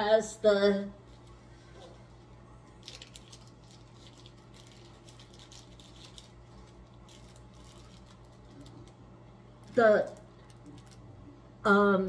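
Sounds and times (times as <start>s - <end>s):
steady low hum: 0.0s - 12.0s
plastic packet crinkling: 1.0s - 9.0s, 9.6s - 11.1s.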